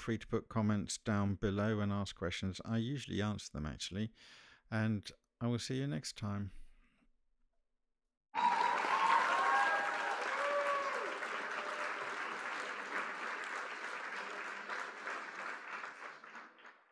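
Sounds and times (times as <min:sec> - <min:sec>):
whoops: 0:08.4 - 0:12.4
crowd applauding and cheering: 0:08.4 - 0:16.9.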